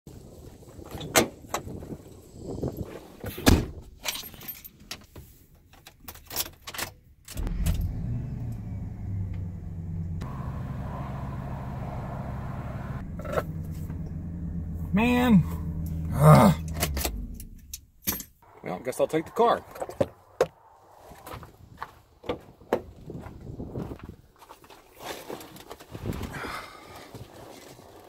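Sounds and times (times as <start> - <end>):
truck engine starting and idling: 7.4 - 18.0.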